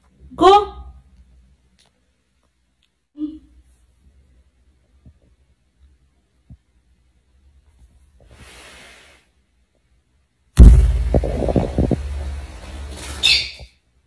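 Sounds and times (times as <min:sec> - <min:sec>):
faint soft rustle: 0:01.2 - 0:06.8
loud thump on phone microphone: 0:10.6 - 0:12.2
low rumbling and rubbing: 0:10.6 - 0:13.2
brief high squeak: 0:13.2 - 0:13.7.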